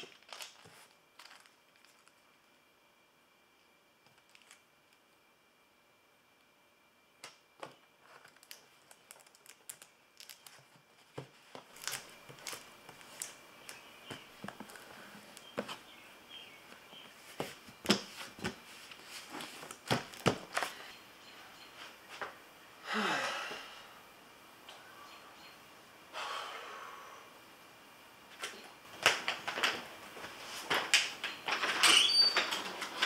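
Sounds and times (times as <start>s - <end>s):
tape tearing and crinkling: 0.0s - 2.2s, 7.6s - 15.6s, 17.8s - 20.8s.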